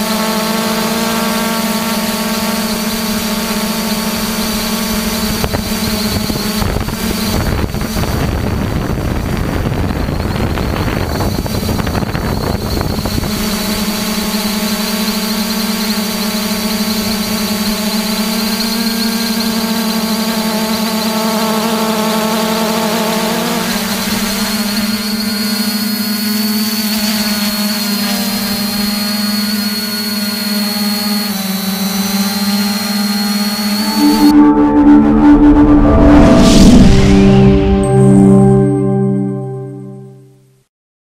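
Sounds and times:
drone propellers buzzing: 0.0 - 39.6
thin high whine: 0.0 - 40.5
rough rushing noise: 33.8 - 39.0.

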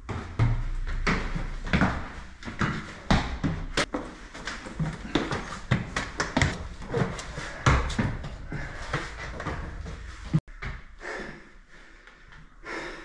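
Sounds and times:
footsteps on wooden stairs: 0.0 - 10.9.

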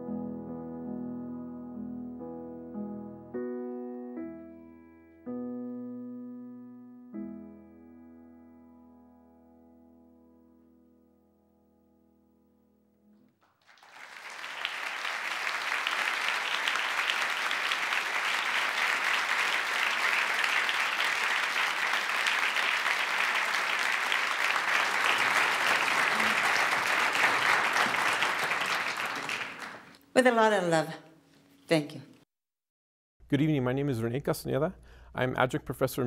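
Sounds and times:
audience applause: 13.4 - 30.0.

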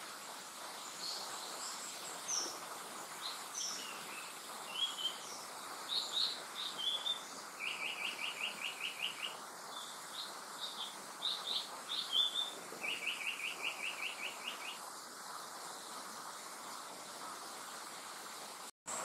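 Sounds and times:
bird singing whistled notes: 3.2 - 14.8.

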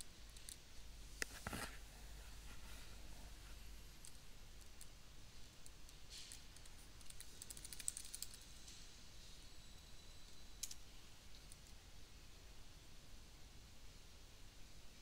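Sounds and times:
faint hiss: 0.0 - 15.0.

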